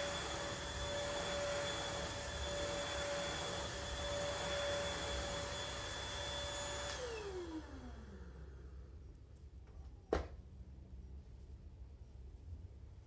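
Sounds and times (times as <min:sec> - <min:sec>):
vacuum motor spinning down: 0:00.0 - 0:08.6
vacuum cleaner motor whine: 0:00.0 - 0:08.8.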